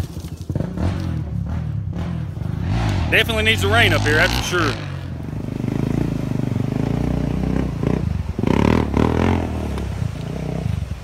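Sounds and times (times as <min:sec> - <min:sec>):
quad bike engine revving: 0:00.4 - 0:11.0
water splashing: 0:02.9 - 0:11.0.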